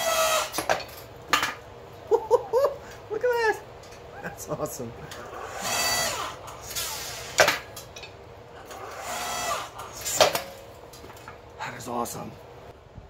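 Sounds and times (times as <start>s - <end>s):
electric motor and pump whining: 0.0s - 0.9s, 5.1s - 7.7s, 8.6s - 11.3s.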